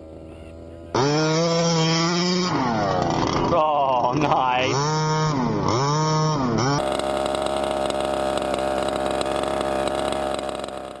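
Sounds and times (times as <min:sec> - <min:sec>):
two-stroke engine revving and idling: 0:00.0 - 0:11.0.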